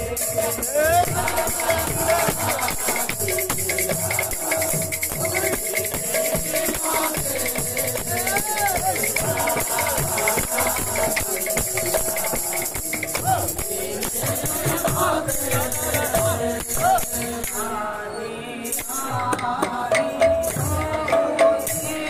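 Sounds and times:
barrel drum beaten fast: 0.0s - 17.6s
man singing into microphone: 0.0s - 22.0s.

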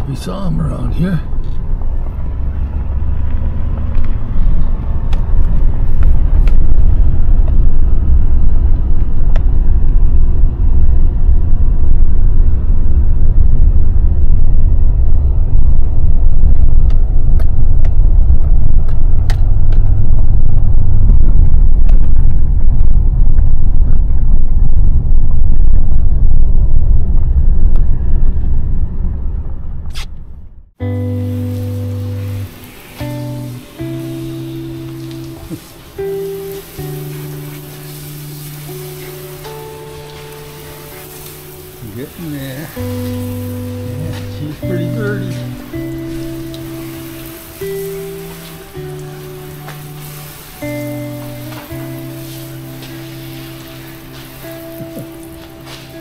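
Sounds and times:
pickup truck driving on gravel: 0.0s - 11.3s, 31.0s - 56.0s.

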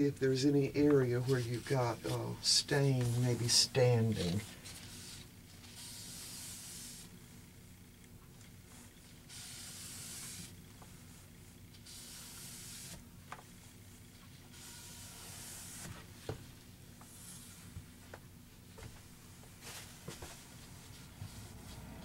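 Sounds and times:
rag wiping wood: 1.2s - 5.2s.

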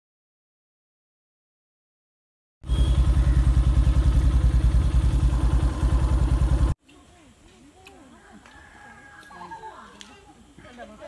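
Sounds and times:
motorcycle engine running: 2.6s - 6.8s.

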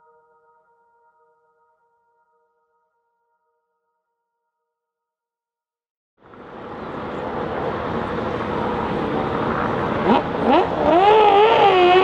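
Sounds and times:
racing car engine revving: 6.6s - 12.0s.

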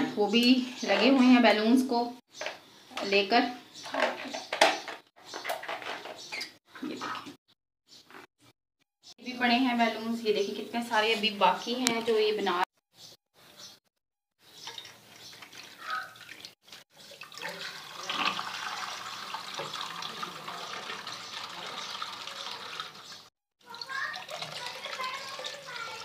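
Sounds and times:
water running from a tap: 14.6s - 26.0s.

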